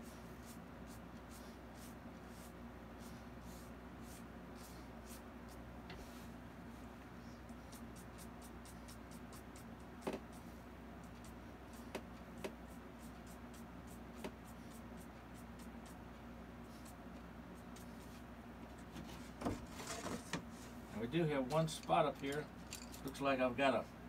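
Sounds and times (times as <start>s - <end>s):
paintbrush scratching on canvas: 0.0s - 6.2s, 7.3s - 16.0s, 16.6s - 18.3s
low room hum: 0.0s - 24.0s.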